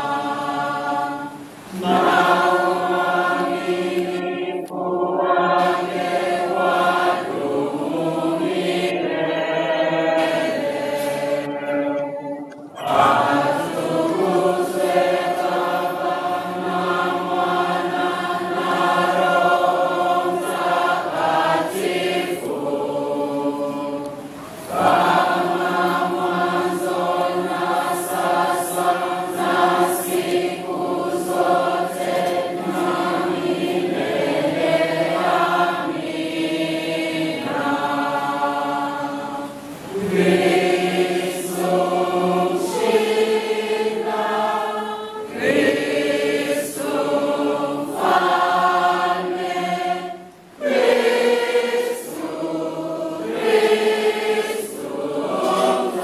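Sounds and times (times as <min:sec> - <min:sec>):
congregation singing a hymn: 0:00.0 - 0:56.0.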